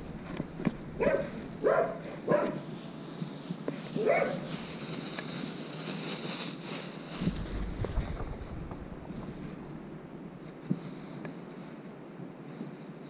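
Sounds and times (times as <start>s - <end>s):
steady hiss: 0.0s - 13.0s
dog barking: 1.0s - 2.6s, 4.0s - 4.5s.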